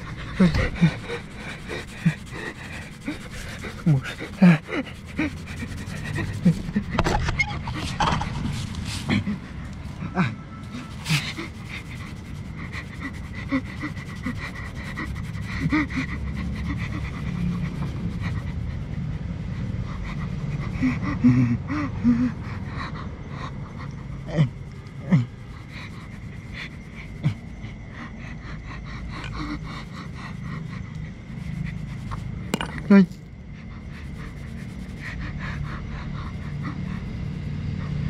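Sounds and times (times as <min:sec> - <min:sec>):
man panting: 0:00.0 - 0:07.0, 0:08.8 - 0:18.9.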